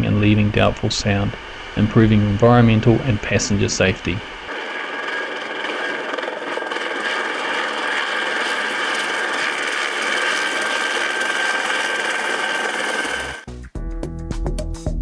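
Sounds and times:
high turbine whine: 0.0s - 13.5s
helicopter rotor and engine: 4.5s - 13.5s.

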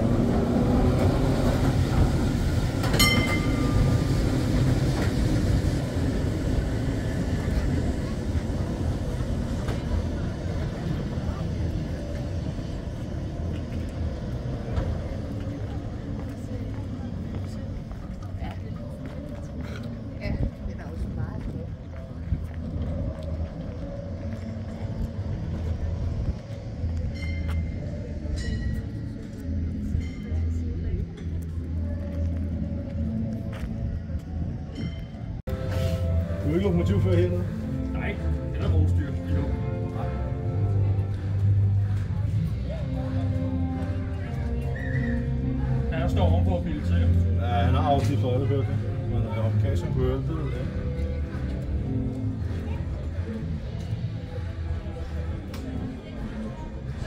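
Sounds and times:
tram rumbling on rails: 0.0s - 57.0s
metallic ding: 3.0s - 3.8s
high ringing tones: 3.0s - 4.0s.

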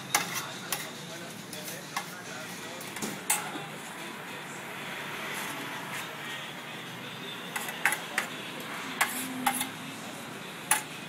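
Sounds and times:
metal utensils clinking on griddle: 0.0s - 3.7s, 7.5s - 8.4s, 9.0s - 9.8s, 10.6s - 11.0s.

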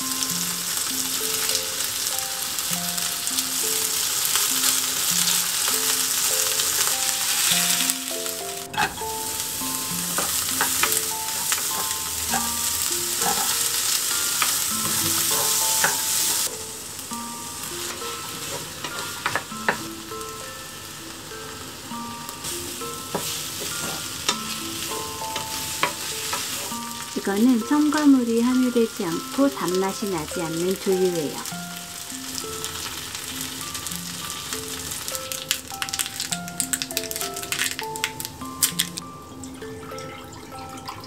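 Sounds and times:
food sizzling in oil: 0.0s - 41.0s
spatula scraping and tapping pan: 8.7s - 9.1s, 9.9s - 16.2s, 17.8s - 19.9s, 23.0s - 27.0s.

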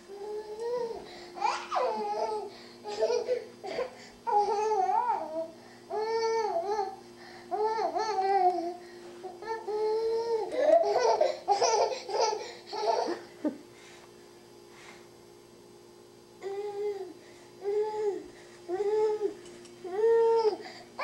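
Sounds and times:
toddler babbling: 0.1s - 8.8s, 16.4s - 20.6s
toddler laughing: 1.4s - 5.3s, 10.5s - 13.6s.

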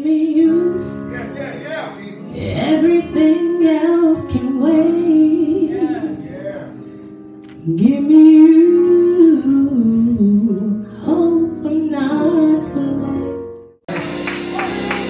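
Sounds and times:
woman singing into a microphone: 0.0s - 1.0s, 2.3s - 5.7s, 7.6s - 13.5s
backing music: 0.5s - 7.9s, 13.9s - 15.0s.

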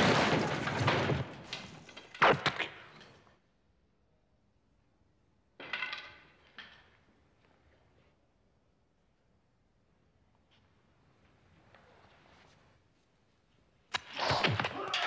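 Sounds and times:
dense clatter: 0.0s - 2.2s.

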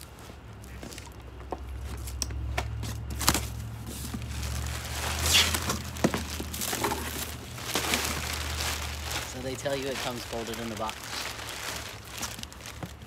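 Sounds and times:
plastic wrapping crinkling: 3.1s - 13.0s.

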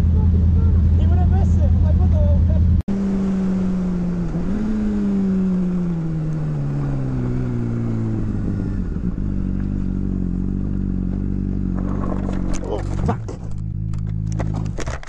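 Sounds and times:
motorcycle engine slowing to idle: 5.4s - 14.8s.

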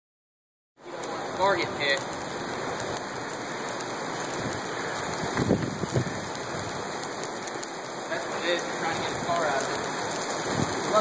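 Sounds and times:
hail and rain on asphalt: 0.8s - 11.0s.

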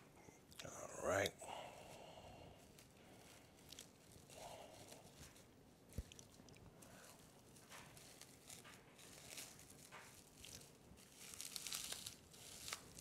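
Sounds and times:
cling film crinkling: 1.8s - 13.0s.

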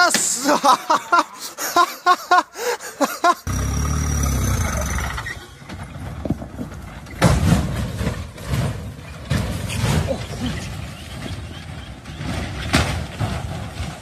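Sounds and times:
person speaking: 0.0s - 2.0s
engine under load: 3.5s - 7.1s.

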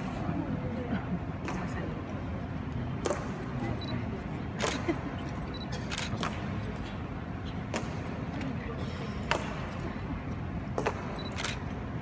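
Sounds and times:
murmur of crowd: 0.0s - 12.0s.

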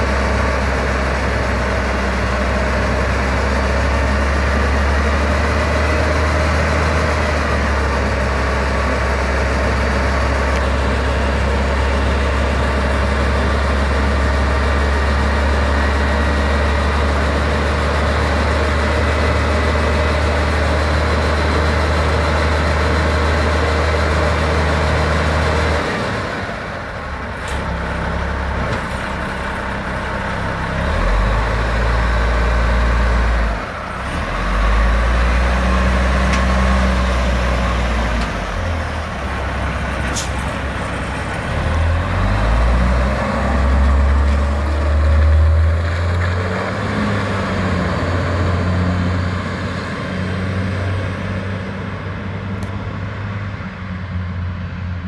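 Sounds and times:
fire truck engine idling: 37.0s - 42.8s.

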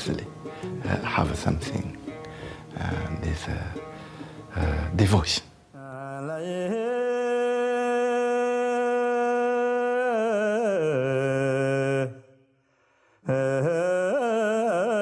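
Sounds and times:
person chanting in long held tone: 13.3s - 15.0s.

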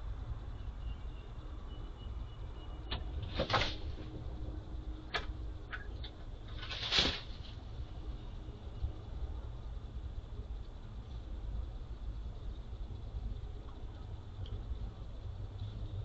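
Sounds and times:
steady low rumble: 3.8s - 16.0s
bird wing rushes: 6.6s - 7.6s.

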